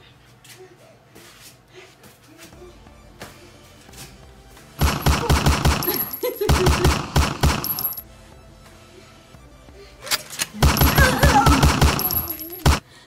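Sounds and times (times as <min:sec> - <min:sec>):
machine-gun fire sound effect: 0:04.8 - 0:08.0, 0:10.6 - 0:12.8
person crying out: 0:10.8 - 0:12.6.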